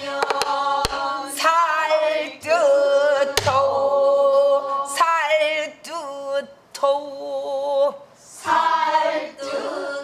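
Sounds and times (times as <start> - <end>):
barrel drum beats: 0.0 - 1.1.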